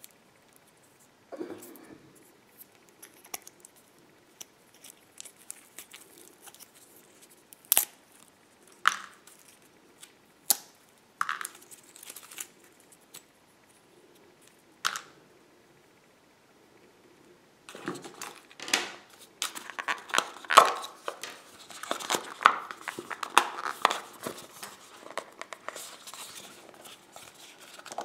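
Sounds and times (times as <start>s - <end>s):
wrapper crinkling: 11.3s - 13.2s, 17.7s - 28.0s.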